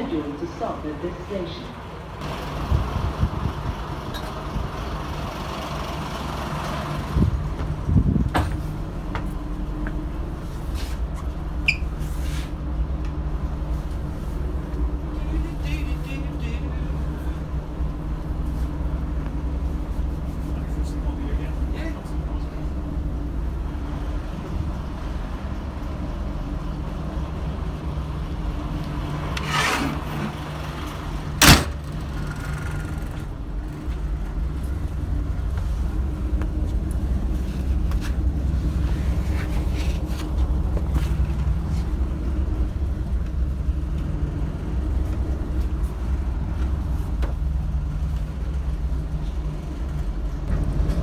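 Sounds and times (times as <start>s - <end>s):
railcar diesel engine running: 0.0s - 51.0s
sharp bang: 31.4s - 32.0s.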